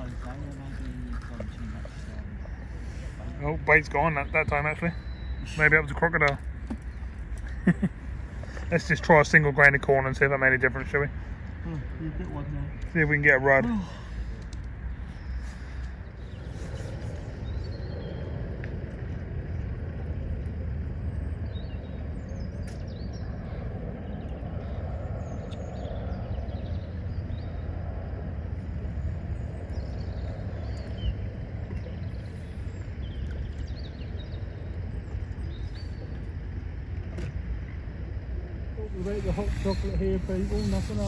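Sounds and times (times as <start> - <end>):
steady low rumble: 0.0 - 41.0
bird chirps and calls: 38.8 - 41.0.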